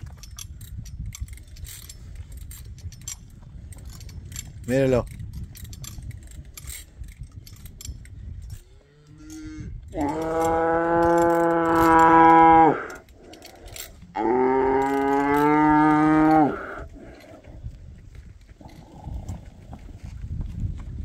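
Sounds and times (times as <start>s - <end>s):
cow mooing: 8.6s - 17.2s.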